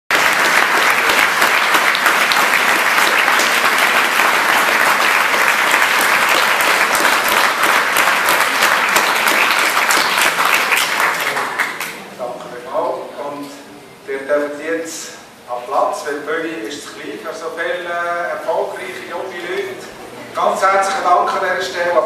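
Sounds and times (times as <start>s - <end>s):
large crowd applauding: 0.1s - 12.1s.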